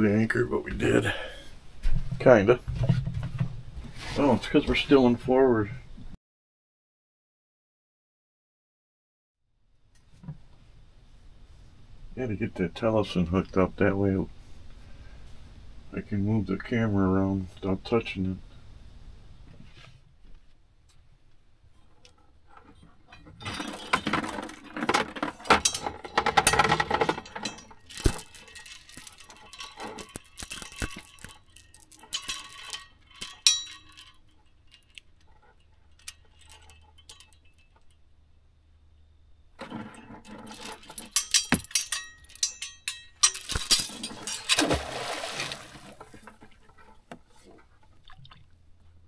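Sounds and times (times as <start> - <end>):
small hard items rattling: 23.4 - 35.4, 40.2 - 44.8.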